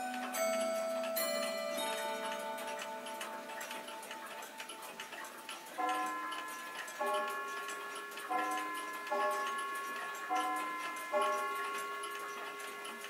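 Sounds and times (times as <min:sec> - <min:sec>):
clock ticking: 0:00.0 - 0:13.0.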